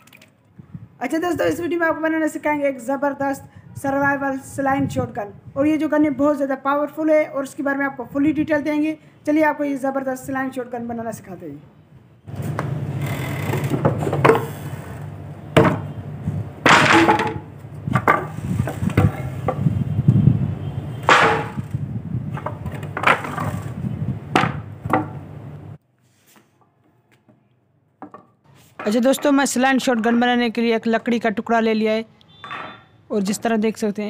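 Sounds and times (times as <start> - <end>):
sharp wooden knocks: 12.5 - 14.5, 15.6 - 15.9, 16.6 - 19.7, 21.0 - 23.7, 24.3 - 25.2.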